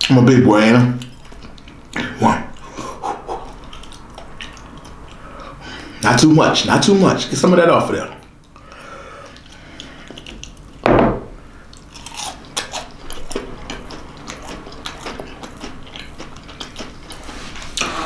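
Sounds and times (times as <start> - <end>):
person chewing: 1.0 - 6.0, 8.2 - 10.8, 11.4 - 18.0.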